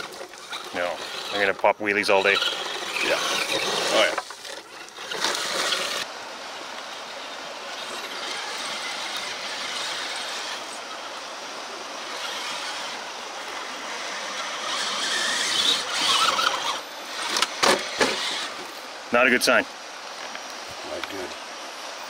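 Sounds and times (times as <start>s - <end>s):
toy truck electric motor whirring: 0.0s - 1.6s, 2.2s - 6.1s, 7.8s - 10.8s, 12.0s - 18.6s.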